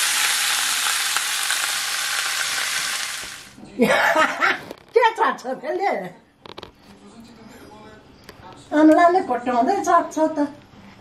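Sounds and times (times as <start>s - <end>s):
chicken sizzling in hot oil: 0.0s - 3.6s.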